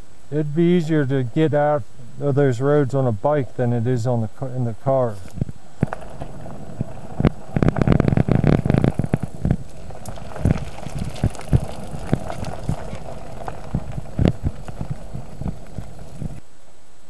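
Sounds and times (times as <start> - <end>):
steady hiss: 0.0 - 17.0
footsteps on gravel: 5.1 - 16.4.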